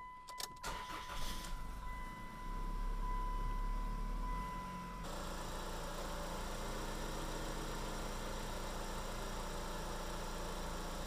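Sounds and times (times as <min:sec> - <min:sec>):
car engine idling: 0:00.6 - 0:11.0
steady high tone: 0:01.4 - 0:05.1.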